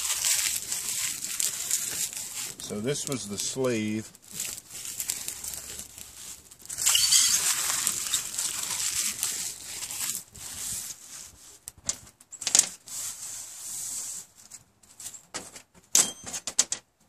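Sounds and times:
spark striker rasping on fire steel: 0.0s - 11.0s.

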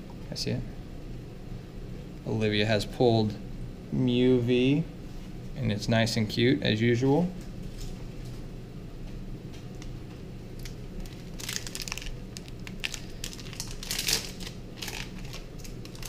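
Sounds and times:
foil wrappers crinkling and tearing: 10.6s - 16.0s.

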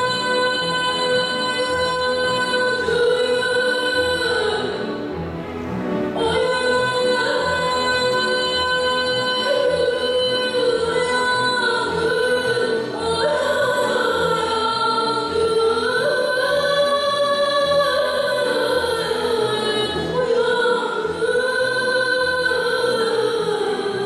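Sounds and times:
orchestra playing: 4.3s - 7.9s.

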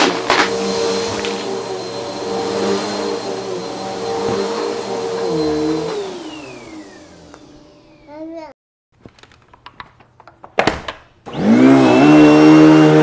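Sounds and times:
vacuum cleaner whining: 0.0s - 8.3s, 11.3s - 13.0s.

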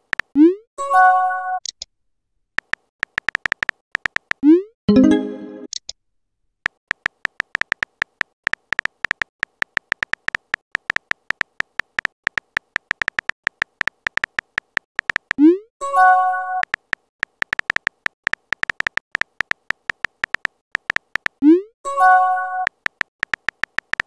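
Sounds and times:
touchscreen keyboard tap clicks: 2.6s - 4.4s, 6.9s - 15.4s, 16.6s - 21.4s, 22.7s - 24.0s
message received tone: 4.9s - 5.7s.

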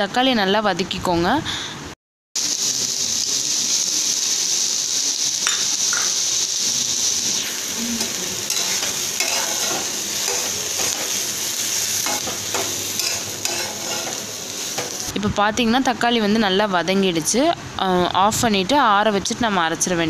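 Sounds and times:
vegetables sizzling in oil: 2.4s - 15.3s
metal spatula scraping pan: 8.0s - 11.3s, 12.0s - 15.1s.

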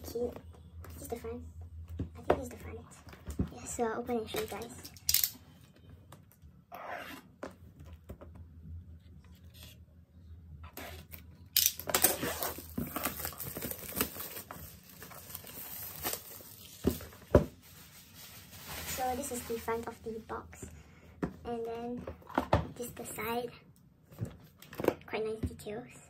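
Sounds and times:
plastic wrap tearing and crinkling: 11.0s - 20.0s.

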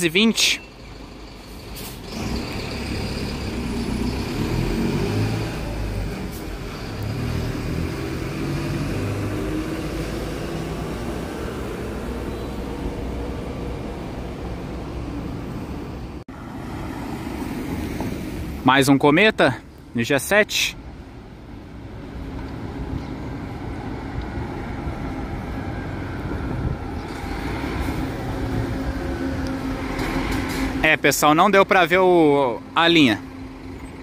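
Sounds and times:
bus diesel engine rumbling: 0.0s - 34.0s.

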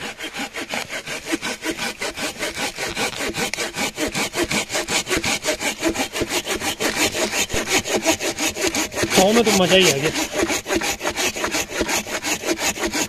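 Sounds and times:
hand saw cutting wood: 0.0s - 13.0s.

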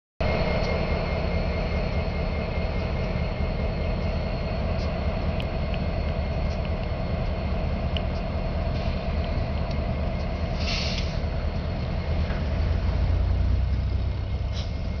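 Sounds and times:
locomotive engine rumbling: 0.2s - 15.0s.

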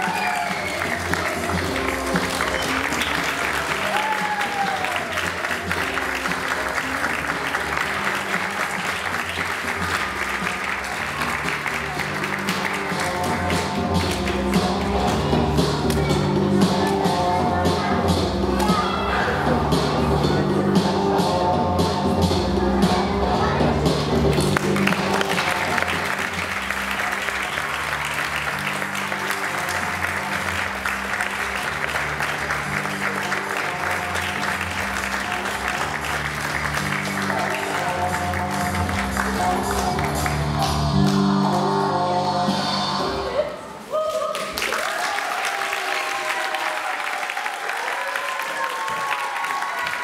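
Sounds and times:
audience applauding: 0.0s - 14.3s, 24.4s - 40.6s, 44.1s - 50.0s
background music with low notes: 0.0s - 43.7s.

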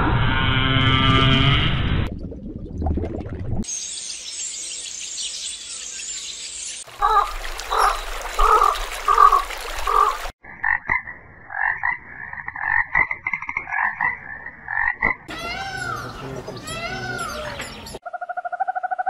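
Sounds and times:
frogs croaking: 6.9s - 19.0s.

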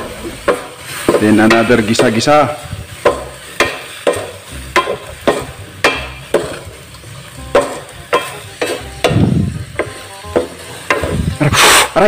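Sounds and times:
frying sizzle: 0.0s - 12.0s
spatula scraping metal wok: 2.8s - 12.0s.

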